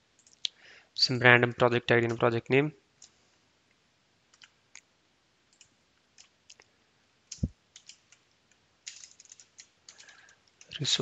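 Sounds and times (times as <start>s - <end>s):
computer keyboard keystrokes: 4.3s - 4.6s, 5.5s - 6.4s, 7.3s - 8.2s, 8.8s - 10.8s.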